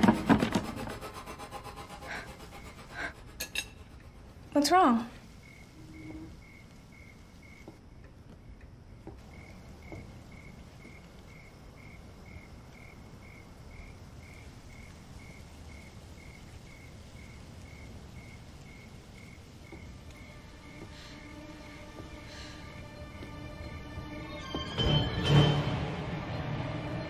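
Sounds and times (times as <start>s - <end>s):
cricket chirping: 5.2s - 24.8s.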